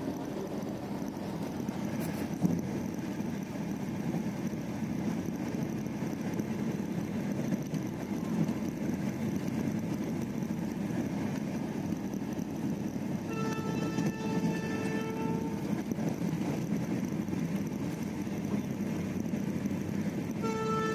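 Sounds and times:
train rumble inside coach: 0:00.0 - 0:20.9
train horn: 0:13.2 - 0:15.9, 0:20.3 - 0:20.9.

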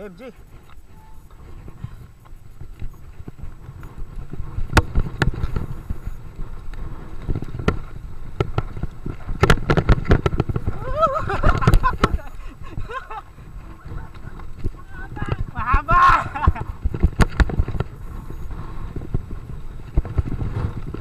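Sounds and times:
mountain bike rattling on dirt trail: 0:00.0 - 0:21.0
wind buffeting microphone: 0:00.0 - 0:21.0
brief wavering squeal: 0:00.9 - 0:01.3.

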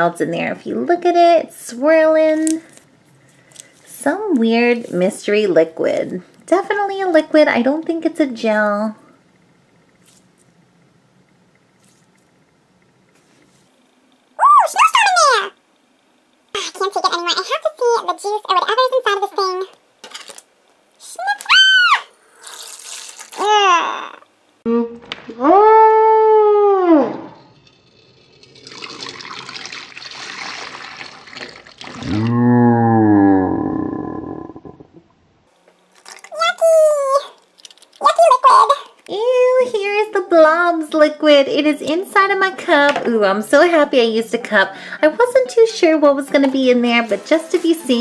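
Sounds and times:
low room tone: 0:00.0 - 0:30.0, 0:31.4 - 0:48.0
liquid trickling into plastic cup: 0:27.6 - 0:32.0
squishy ball squishing: 0:35.9 - 0:38.2.

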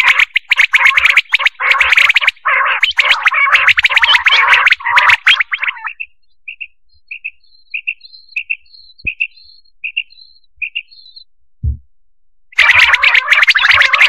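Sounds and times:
low thump: 0:11.6 - 0:11.9.

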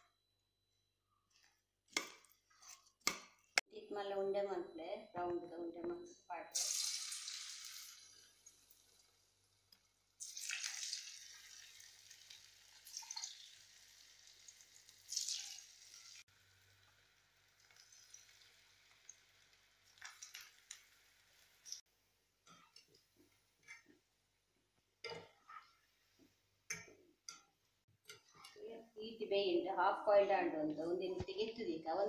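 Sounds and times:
batter sizzling in hot oil: 0:06.6 - 0:21.9.

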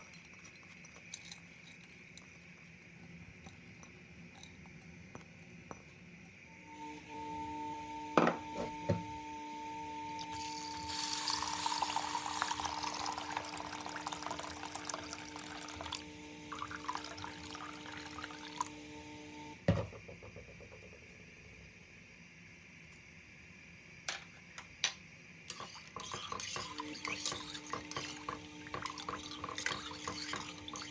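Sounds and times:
water pouring and splashing: 0:10.3 - 0:18.7, 0:25.5 - 0:30.9.

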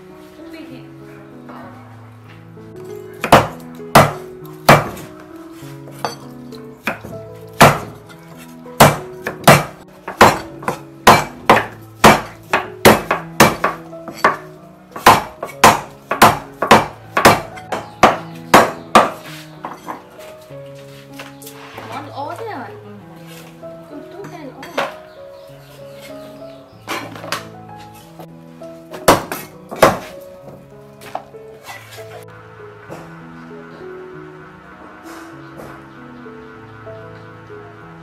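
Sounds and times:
soft background music: 0:00.0 - 0:38.0
cleaver chopping on wooden block: 0:03.2 - 0:05.1, 0:06.8 - 0:20.0, 0:28.9 - 0:30.2.

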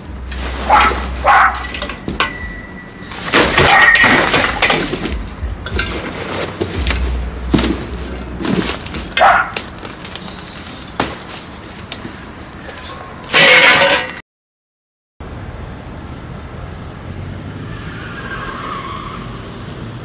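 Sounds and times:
metal tubes clanking: 0:00.0 - 0:14.2
metal tube ringing: 0:01.3 - 0:04.8.

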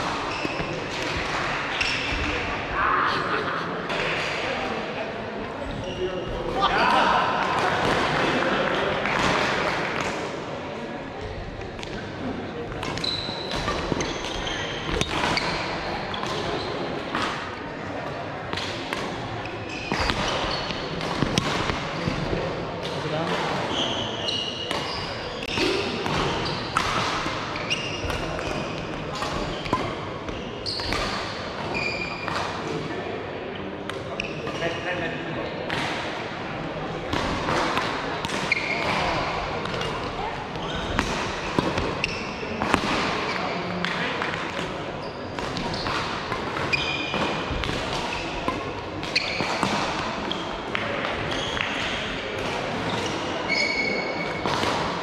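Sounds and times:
racket hits: 0:00.0 - 0:02.3, 0:18.5 - 0:23.7, 0:40.8 - 0:44.8, 0:45.4 - 0:53.3
shoes squeaking on court floor: 0:00.0 - 0:02.4, 0:12.8 - 0:17.2, 0:23.3 - 0:32.5, 0:34.0 - 0:34.8, 0:38.2 - 0:43.9, 0:44.6 - 0:52.1, 0:52.8 - 0:54.7.

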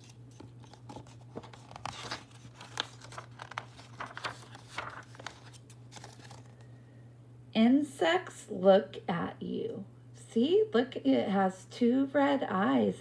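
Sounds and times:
paper page rustling and crinkling: 0:00.0 - 0:06.6.

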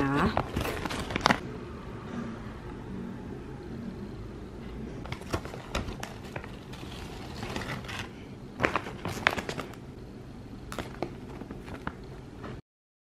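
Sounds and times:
plastic bag crinkling: 0:00.3 - 0:01.4, 0:05.1 - 0:09.8
chips crackling: 0:00.4 - 0:01.4, 0:05.1 - 0:09.8.

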